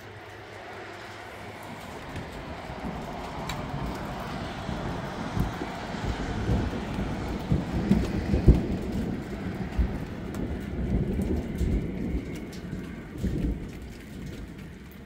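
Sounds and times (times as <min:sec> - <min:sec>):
steady rain falling: 0:00.0 - 0:15.0
thunder rumbling and cracking: 0:00.0 - 0:15.0.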